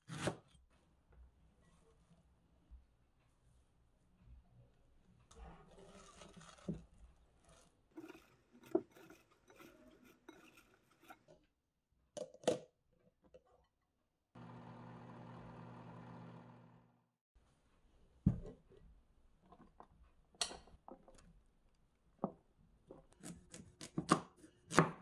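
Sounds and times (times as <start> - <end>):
cabbage rustling in glass bowl: 5.7 - 11.2
microwave oven humming: 14.4 - 17.0.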